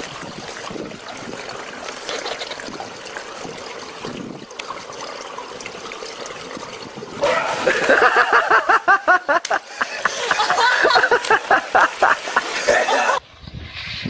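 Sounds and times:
water sloshing and trickling: 0:00.0 - 0:13.2
rhythmic laughter: 0:07.6 - 0:13.2.

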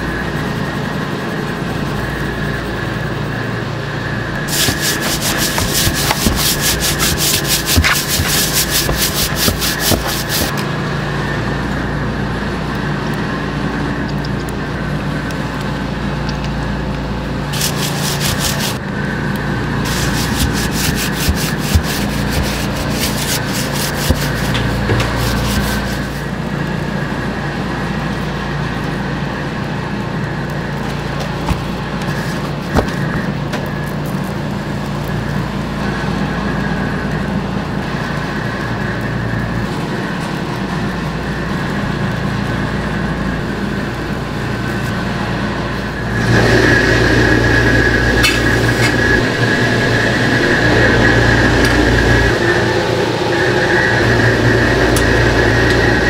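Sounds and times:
steady background hum: 0:00.0 - 0:56.0
gritty rasping of seasoning: 0:04.5 - 0:10.5, 0:17.5 - 0:18.8, 0:19.8 - 0:26.3.

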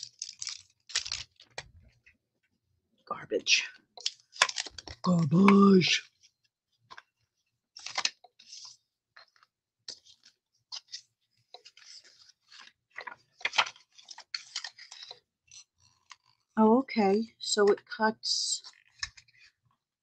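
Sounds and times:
plastic packaging crinkling: 0:00.0 - 0:01.7, 0:04.0 - 0:05.2, 0:11.6 - 0:15.2.

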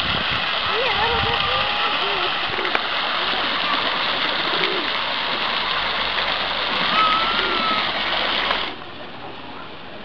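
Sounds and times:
fountain splashing into stone basin: 0:00.0 - 0:09.1.

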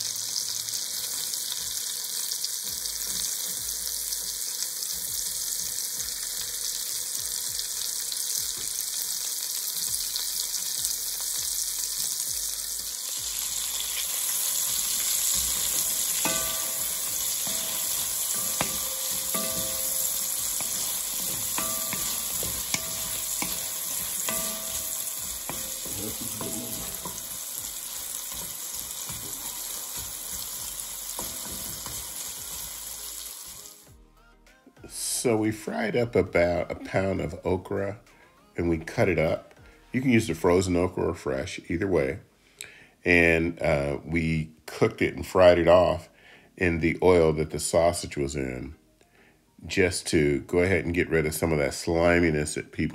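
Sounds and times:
okra sizzling in fat: 0:00.0 - 0:34.0
spatula scraping a pot: 0:13.3 - 0:32.7.

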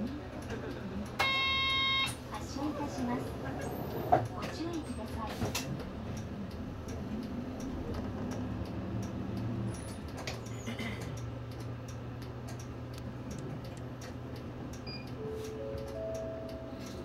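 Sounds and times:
bus engine humming: 0:00.0 - 0:17.0
turn signal ticking: 0:04.2 - 0:17.0.

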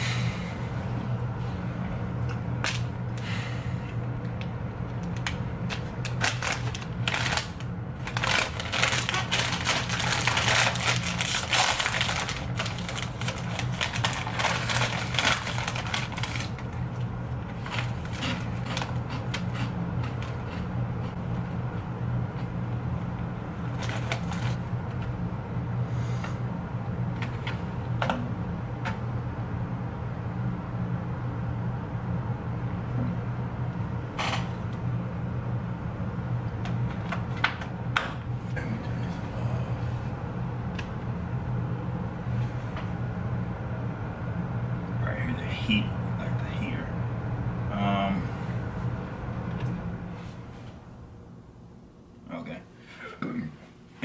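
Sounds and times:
steady low hum: 0:00.0 - 0:54.0
plastic wrapper crinkling: 0:05.8 - 0:16.8.

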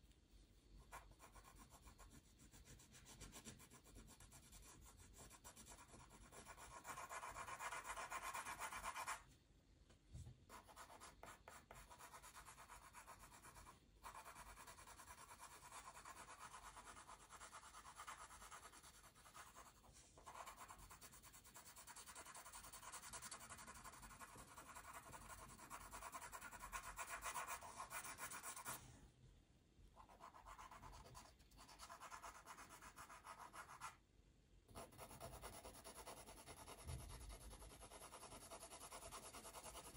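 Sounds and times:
pencil scratching on paper: 0:00.8 - 0:09.2, 0:10.5 - 0:28.9, 0:30.0 - 0:34.0, 0:34.7 - 0:39.9.

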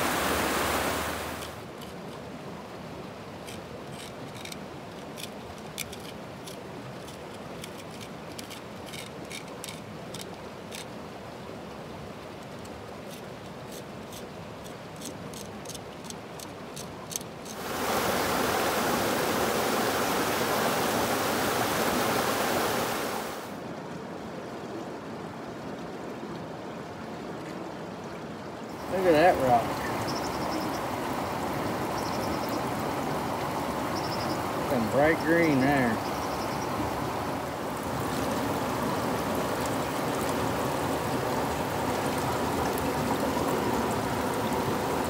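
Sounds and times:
loud rush of noise: 0:00.0 - 0:01.4, 0:17.6 - 0:23.6
river rushing: 0:00.0 - 0:45.0
hand tool scraping on rock: 0:13.1 - 0:16.2.

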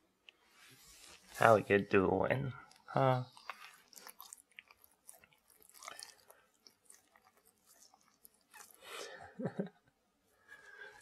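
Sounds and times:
dog licking and smacking: 0:02.6 - 0:08.8.

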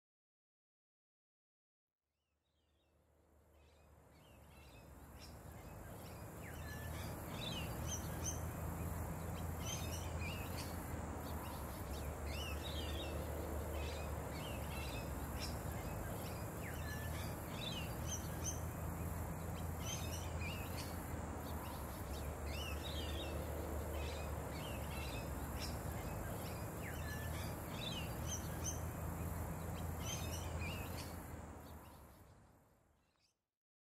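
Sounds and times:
steady low hum: 0:03.4 - 0:32.1
small birds chirping: 0:03.6 - 0:32.4.

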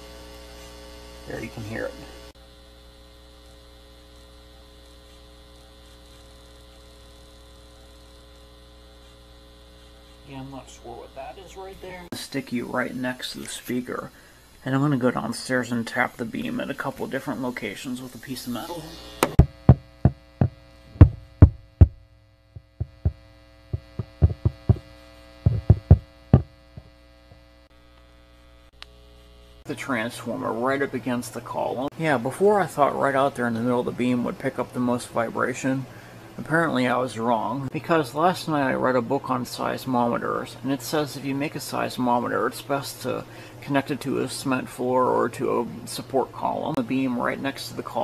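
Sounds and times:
high buzzing tones: 0:00.0 - 0:30.0
electrical hum: 0:00.0 - 0:48.0
sharp knocks through speaker: 0:19.2 - 0:22.0, 0:22.6 - 0:23.2, 0:23.8 - 0:24.9, 0:25.5 - 0:26.9.

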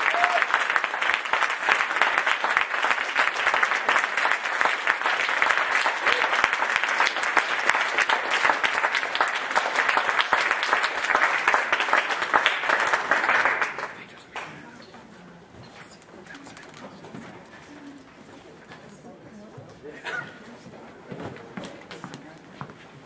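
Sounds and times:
audience clapping: 0:00.0 - 0:14.8.

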